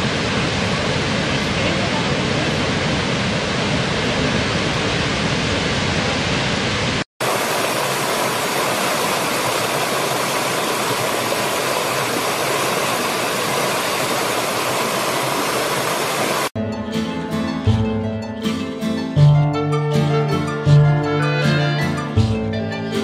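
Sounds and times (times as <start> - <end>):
stream cascading over rocks: 0.0 - 16.6
waterfall rushing: 0.0 - 16.6.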